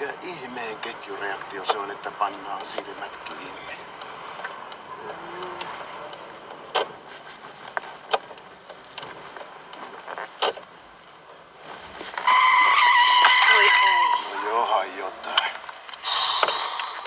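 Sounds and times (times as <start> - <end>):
car interior hum: 0.0 - 17.0
sharp clicks: 4.0 - 7.0
tyres squealing: 12.0 - 17.0.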